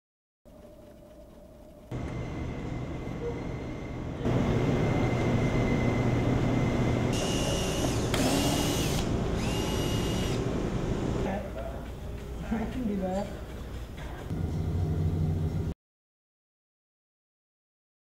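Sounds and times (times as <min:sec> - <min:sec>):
workshop machine noise: 0:00.9 - 0:15.7
power tool whining: 0:04.2 - 0:11.2.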